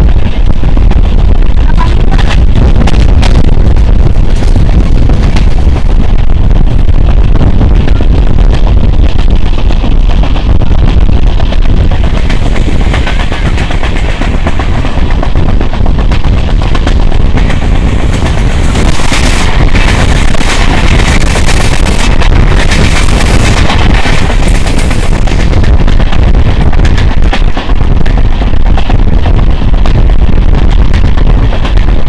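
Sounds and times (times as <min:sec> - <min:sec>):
passing train rushing: 0:00.0 - 0:32.0
train wheels rumbling on rail: 0:00.0 - 0:32.0.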